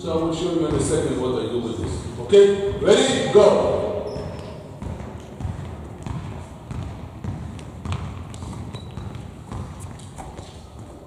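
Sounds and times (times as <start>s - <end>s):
basketball bouncing on hall floor: 0.0s - 11.0s.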